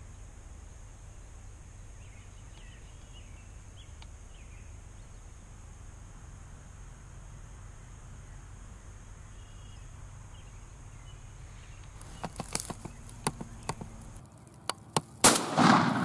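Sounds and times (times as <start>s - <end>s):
light clicks and taps: 12.0s - 15.2s
shotgun blast: 15.2s - 16.0s.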